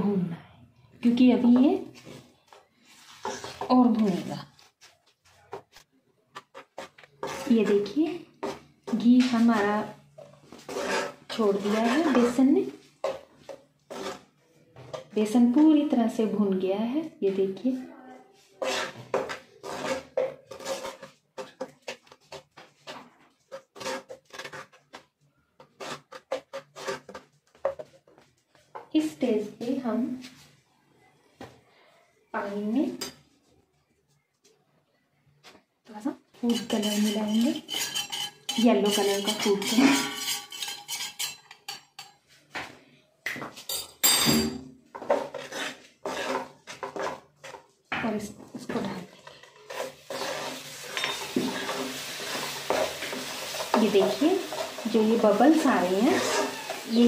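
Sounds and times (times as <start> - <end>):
spoon scraping a pan: 1.4 - 4.9, 5.5 - 15.9, 18.4 - 29.2, 36.3 - 42.6, 43.7 - 57.0
spoon clinking against steel bowl: 36.5 - 42.2, 50.9 - 51.3.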